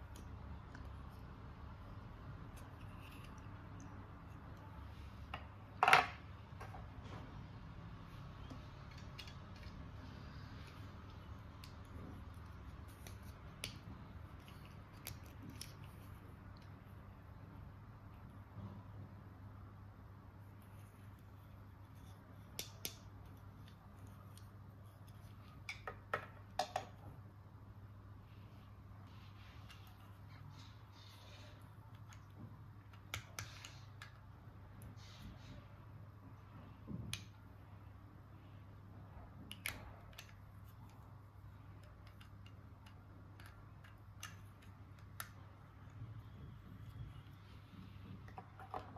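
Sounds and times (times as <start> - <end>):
faint low hum: 0.0 - 48.9
light clicks of toy parts: 39.4 - 46.0.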